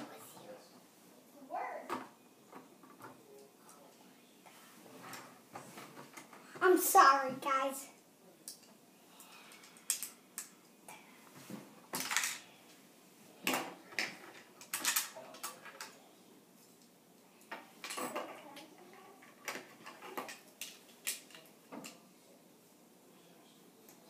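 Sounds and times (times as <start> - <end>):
plastic toy pieces clicking: 9.6 - 10.5.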